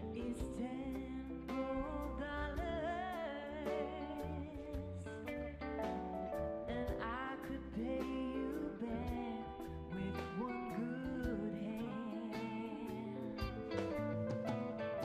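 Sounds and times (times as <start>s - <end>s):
woman singing: 0.0s - 14.1s
drums: 0.0s - 15.0s
electric bass: 0.0s - 15.0s
keyboards: 0.0s - 15.0s.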